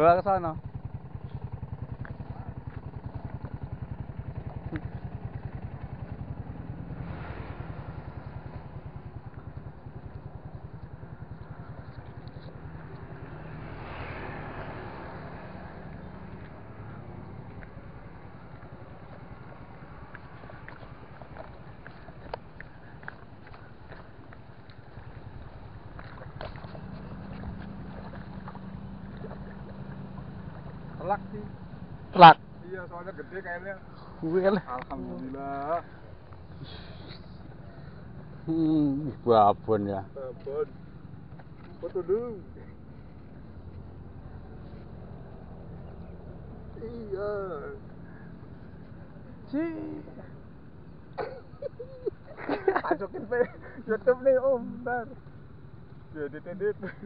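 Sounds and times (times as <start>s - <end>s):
engine idling: 0.0s - 57.0s
wash of noise: 6.6s - 9.0s.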